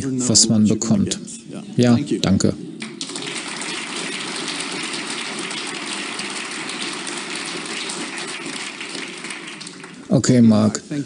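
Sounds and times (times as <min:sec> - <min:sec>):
audience applauding: 0:02.8 - 0:10.7.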